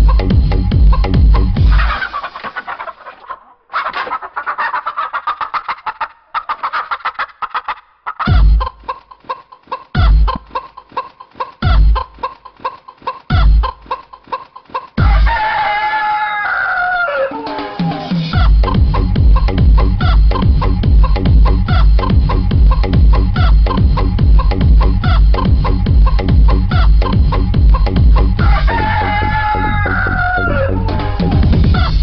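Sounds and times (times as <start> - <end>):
heavy bass beats: 0.0 - 2.0, 8.2 - 8.9, 10.0 - 10.6, 11.6 - 12.2, 13.3 - 13.9, 15.0 - 15.6, 17.7 - 32.0
dance music: 0.0 - 2.1, 17.4 - 32.0
chicken clucking: 1.0 - 32.0
rooster crowing: 15.0 - 18.2, 28.4 - 31.6.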